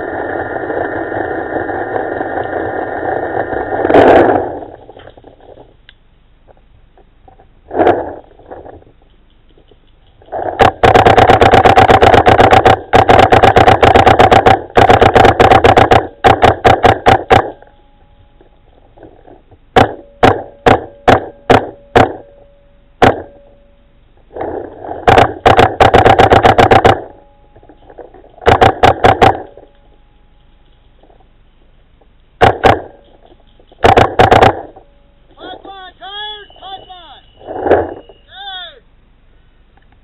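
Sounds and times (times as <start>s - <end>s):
faint steady whine: 0.0s - 40.0s
paintball marker shots: 7.8s - 17.8s, 19.2s - 22.3s, 23.0s - 23.4s, 24.3s - 29.8s, 32.4s - 34.8s.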